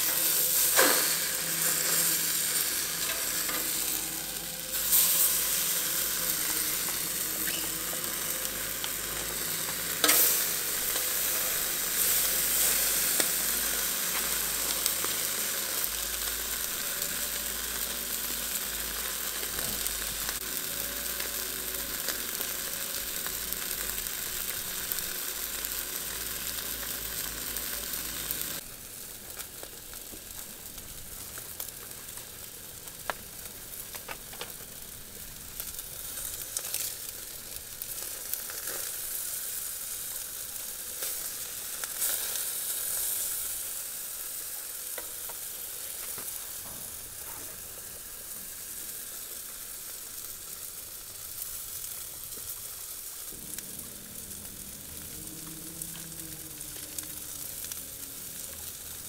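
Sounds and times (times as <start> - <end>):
food sizzling on a hotplate: 0.0 - 59.0.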